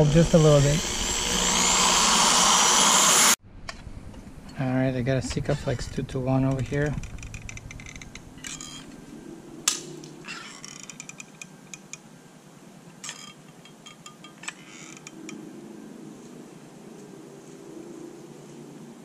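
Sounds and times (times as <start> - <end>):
plastic squeaks: 5.2 - 9.0, 10.2 - 11.4, 14.4 - 15.2.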